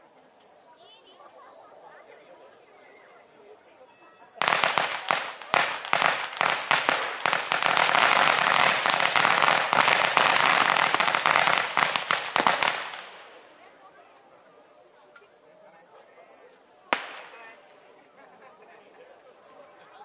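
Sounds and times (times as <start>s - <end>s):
firecrackers crackling: 4.4s - 13.9s, 16.9s - 17.8s.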